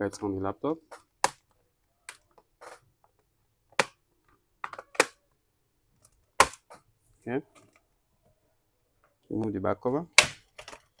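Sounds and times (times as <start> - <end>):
plastic clips popping loose: 4.6 - 5.2.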